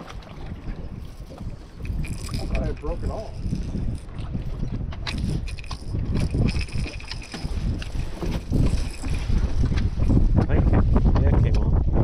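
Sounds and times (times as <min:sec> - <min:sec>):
wind buffeting microphone: 0:00.0 - 0:12.0
fishing reel ticking: 0:01.8 - 0:04.3, 0:05.0 - 0:09.4.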